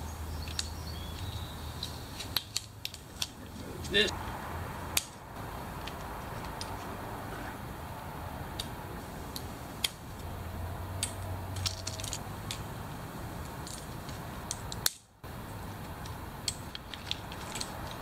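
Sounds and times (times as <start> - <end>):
hand cutters snipping metal strips: 11.0 - 12.7.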